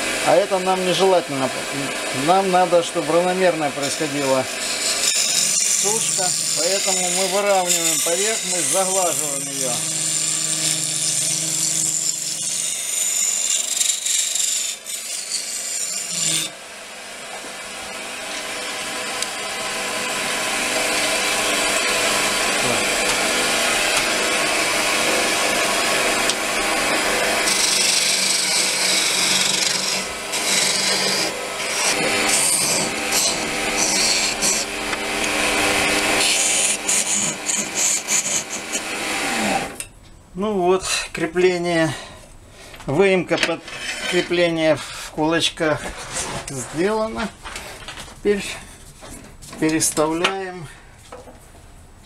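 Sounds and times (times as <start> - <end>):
lathe motor humming: 0.0 - 39.8
gouge scraping wood on lathe: 0.2 - 16.5, 20.8 - 39.7, 43.6 - 45.1.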